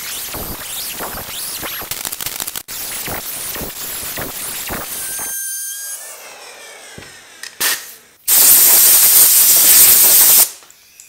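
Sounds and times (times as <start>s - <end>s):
motor winding down whine: 0.0s - 7.4s
router cutting wood: 3.6s - 7.4s
loud steady hiss: 8.3s - 10.6s.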